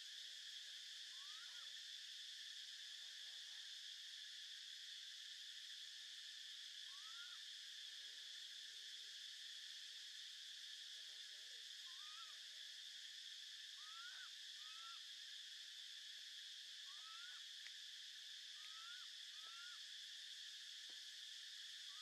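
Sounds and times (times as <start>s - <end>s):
insects droning: 0.0s - 22.0s
short rising whistled calls: 13.8s - 15.0s, 16.9s - 17.4s, 18.6s - 19.8s.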